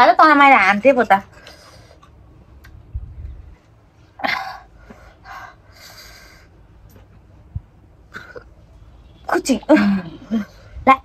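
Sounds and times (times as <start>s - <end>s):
woman coughing and snorting: 4.2s - 4.7s, 8.1s - 8.6s, 9.6s - 10.7s.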